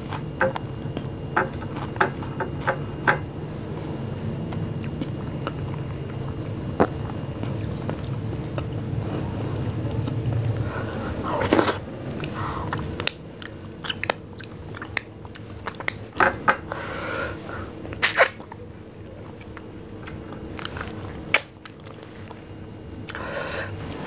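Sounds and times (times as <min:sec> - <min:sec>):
chewing: 0:04.4 - 0:08.8, 0:11.4 - 0:16.0, 0:19.2 - 0:22.4.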